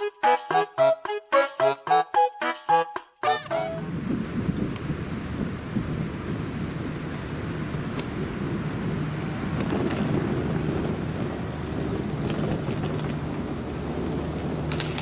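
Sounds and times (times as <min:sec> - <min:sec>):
low rumble of traffic: 0:03.7 - 0:15.0.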